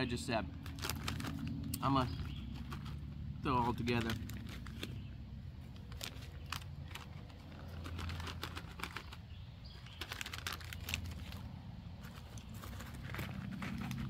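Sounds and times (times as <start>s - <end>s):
plastic packaging crinkling: 0.6s - 3.1s, 3.7s - 5.1s, 5.7s - 11.5s.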